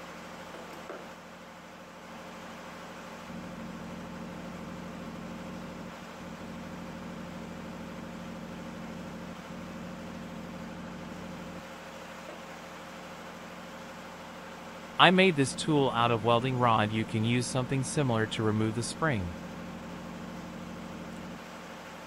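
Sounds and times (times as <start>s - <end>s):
low machine hum with tones: 0.0s - 22.0s.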